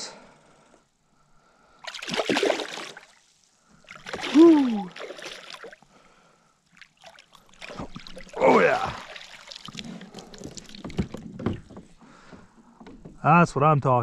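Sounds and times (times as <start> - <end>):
fish splashing at water surface: 1.8 - 3.2, 3.8 - 5.9, 6.7 - 11.2.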